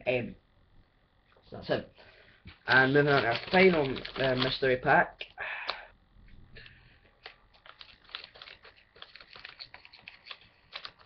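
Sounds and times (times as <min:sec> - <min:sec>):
small clicks and crackles: 0:02.6 - 0:04.6, 0:06.6 - 0:11.0
plastic bag crinkling: 0:02.6 - 0:04.8, 0:07.2 - 0:11.0.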